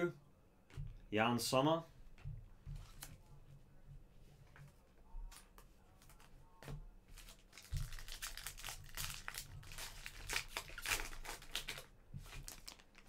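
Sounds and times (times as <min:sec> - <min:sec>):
wrapper crinkling and tearing: 0:07.1 - 0:13.0.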